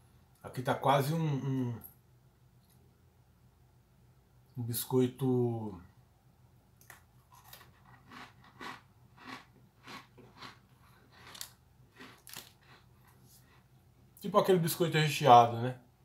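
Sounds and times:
man chewing crunchy cookie: 6.8s - 13.8s.

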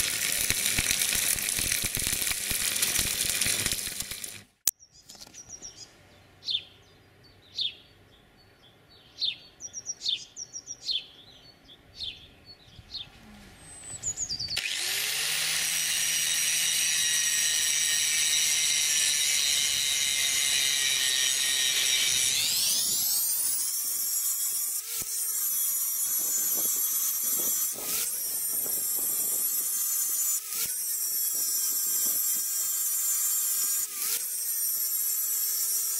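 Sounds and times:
angle grinder grinding steel: 0.0s - 4.6s, 14.5s - 35.9s
small bird chirping: 4.7s - 14.6s.

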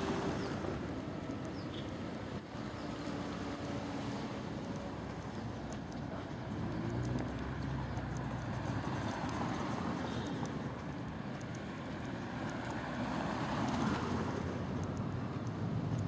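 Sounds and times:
cars driving past: 0.0s - 16.0s.

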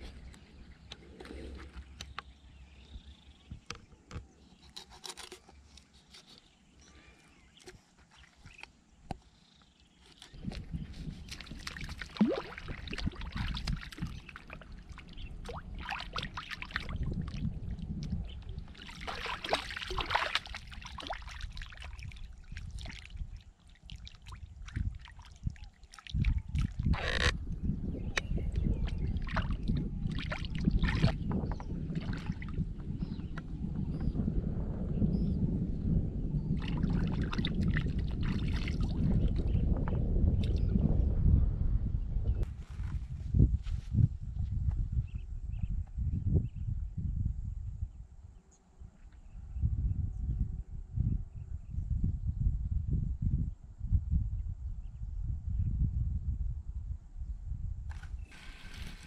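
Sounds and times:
water splashing and trickling: 10.0s - 27.4s, 28.4s - 32.9s, 36.6s - 39.5s, 57.9s - 59.0s.

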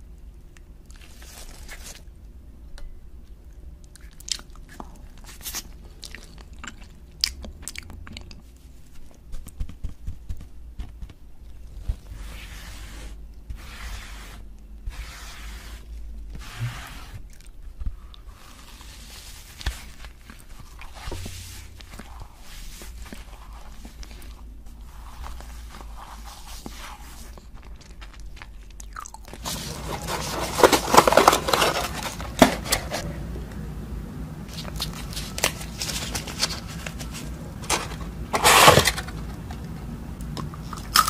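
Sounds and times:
chewing mouth sounds: 3.8s - 8.5s, 27.4s - 29.4s
cardboard box crackling: 29.4s - 33.0s, 34.5s - 39.3s.

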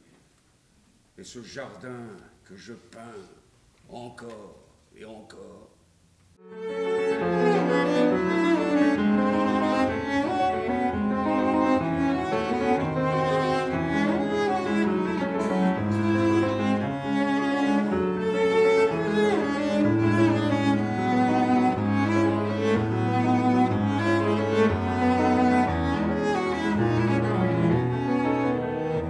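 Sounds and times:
cello bowed melody: 6.4s - 29.0s.

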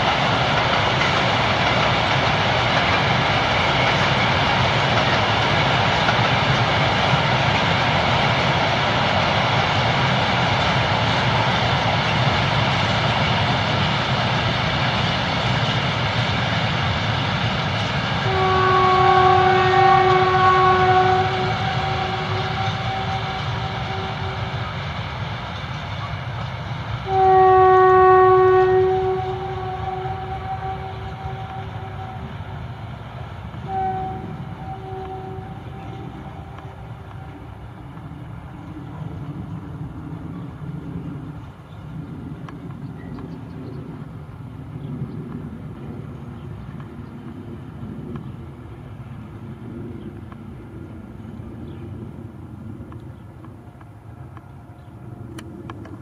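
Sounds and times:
freight train rumbling past: 0.0s - 56.0s
locomotive horn: 18.2s - 24.7s, 27.0s - 32.4s, 33.6s - 37.6s.

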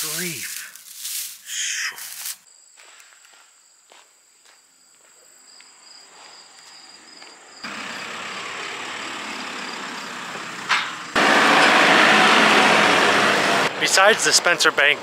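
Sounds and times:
diesel engine driving past: 7.7s - 15.0s.

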